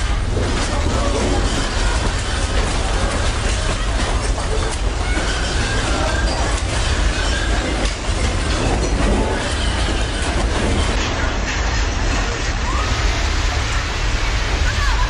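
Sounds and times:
shelving and merchandise rattling: 0:00.0 - 0:15.0.

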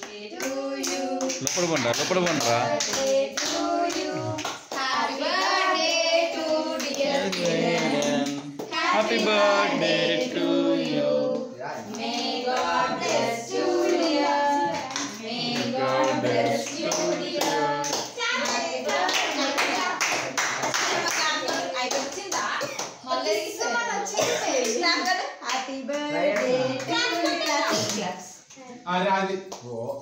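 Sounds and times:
group singing with children: 0:00.0 - 0:21.9, 0:25.6 - 0:28.2
hand-clapping: 0:00.4 - 0:05.6, 0:14.8 - 0:23.0.

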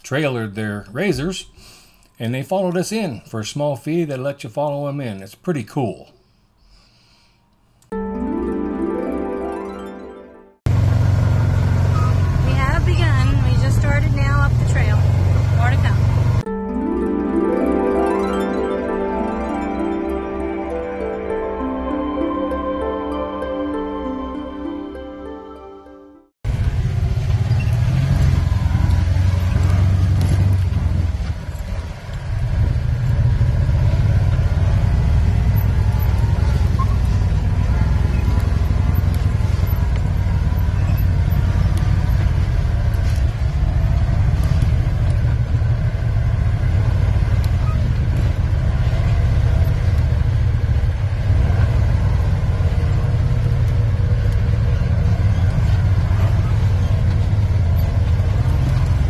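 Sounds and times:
vehicle engine low rumble: 0:10.6 - 0:17.2, 0:26.4 - 0:59.0.

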